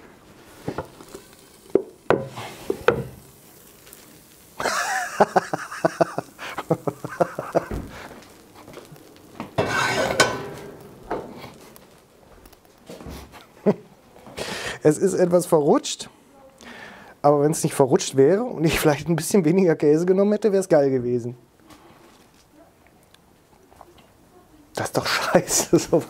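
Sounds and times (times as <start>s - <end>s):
hot pan hissing and crackling: 0.0s - 16.0s, 24.8s - 26.0s.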